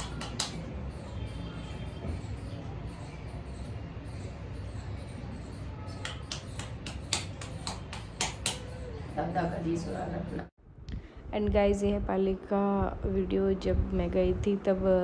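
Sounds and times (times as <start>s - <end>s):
hands clapping: 0.0s - 0.7s, 5.9s - 8.8s.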